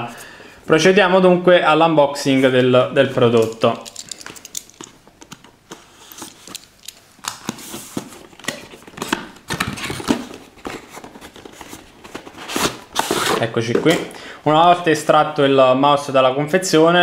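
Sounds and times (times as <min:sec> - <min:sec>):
cardboard box rustling and scraping: 0:07.5 - 0:14.0.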